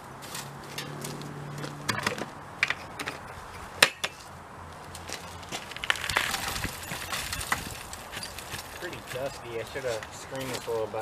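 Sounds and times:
fuel chunks clattering: 5.5 - 9.3.

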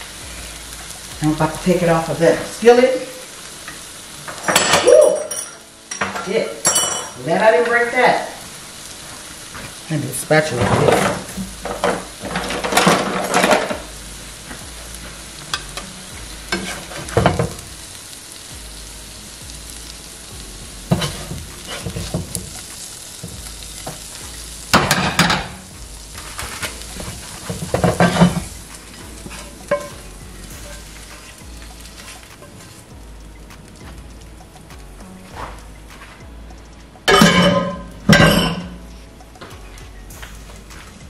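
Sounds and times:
food sizzling in a pan: 0.0 - 41.0
spatula scraping a skillet: 16.5 - 17.6, 20.9 - 22.8, 26.1 - 32.8.

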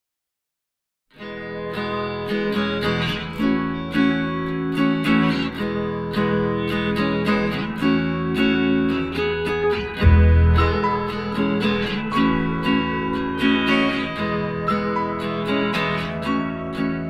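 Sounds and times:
strummed acoustic guitar music: 1.1 - 17.0.

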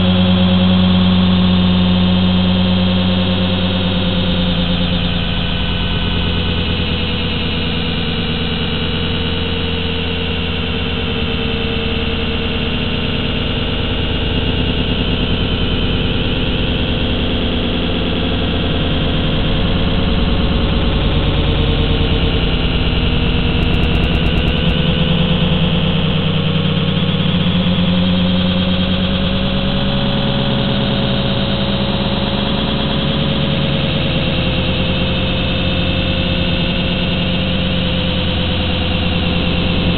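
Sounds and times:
drone motors whining: 12.7 - 39.9.

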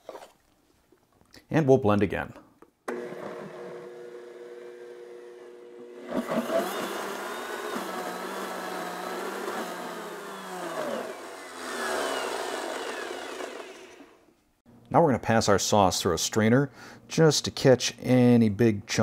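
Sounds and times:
blender motor running: 2.9 - 14.3.

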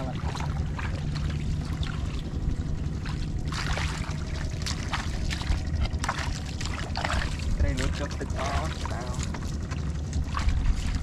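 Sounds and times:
feet squelching through mud and water: 3.0 - 11.0.

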